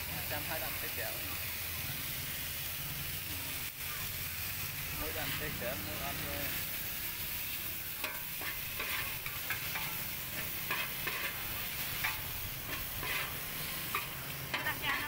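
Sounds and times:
hot oil sizzling: 0.0 - 15.0
metal spatula scraping steel pan: 8.0 - 15.0.

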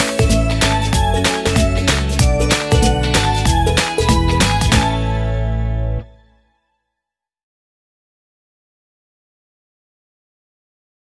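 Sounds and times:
background music: 0.0 - 6.6.

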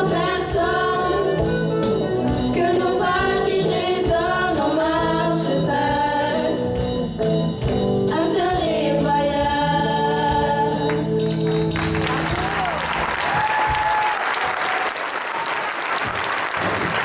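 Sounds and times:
girls singing together: 0.0 - 1.4, 2.5 - 6.6
live rock band playing: 0.0 - 4.4, 6.1 - 8.6.

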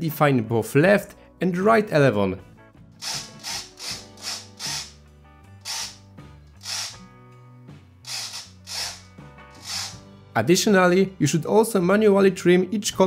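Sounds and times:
background music with bass line: 2.3 - 11.9
small servos whirring: 3.0 - 5.0, 5.6 - 6.0, 6.6 - 7.0, 8.1 - 10.0.

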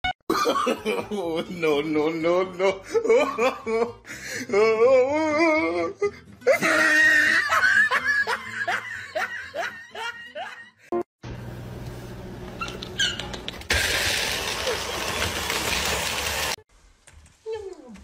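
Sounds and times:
person laughing hard: 0.3 - 1.5, 2.5 - 4.0, 6.5 - 10.9.

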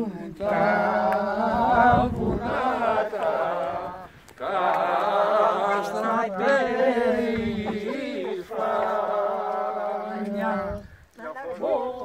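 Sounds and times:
men singing unaccompanied: 0.0 - 12.0.

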